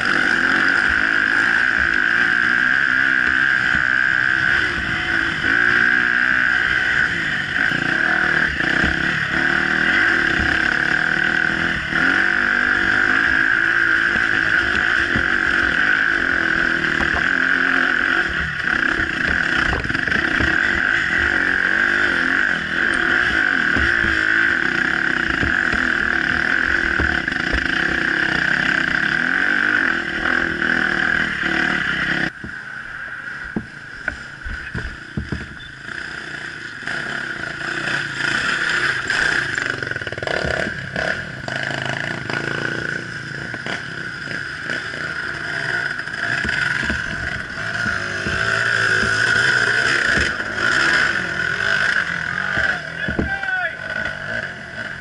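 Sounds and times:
dirt bike engine under throttle: 0:00.0 - 0:55.0.

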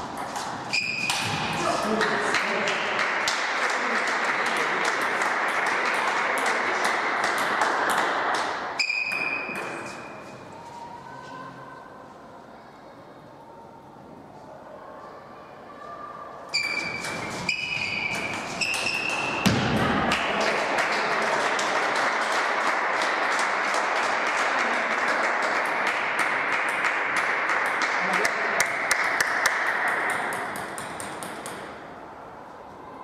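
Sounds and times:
table tennis ball bouncing: 0:06.9 - 0:10.1, 0:16.6 - 0:20.0, 0:26.6 - 0:31.8.

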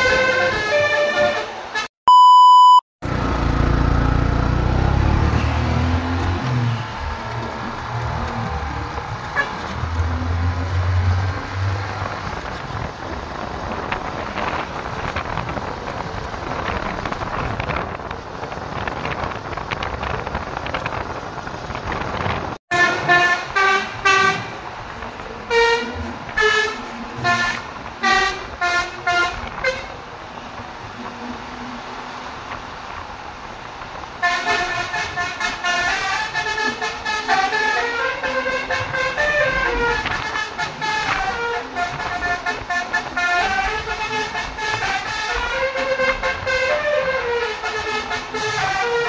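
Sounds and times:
musical bus horn toots: 0:00.0 - 0:01.9, 0:09.3 - 0:11.2, 0:22.7 - 0:24.6, 0:25.5 - 0:30.0, 0:34.2 - 0:49.0
street and engine noise: 0:00.0 - 0:01.9, 0:03.0 - 0:49.0.

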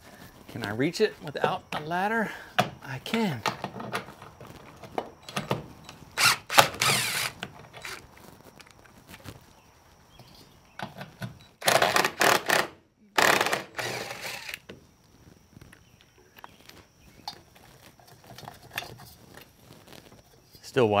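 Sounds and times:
impact driver running: 0:06.2 - 0:08.0, 0:11.6 - 0:14.6.

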